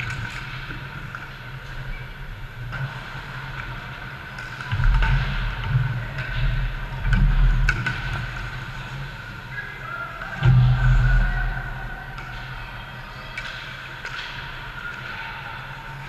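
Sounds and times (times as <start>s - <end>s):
hockey sticks and puck clicking: 0.0s - 1.8s, 2.7s - 9.0s, 13.3s - 16.0s
steady rink hum: 0.0s - 16.0s.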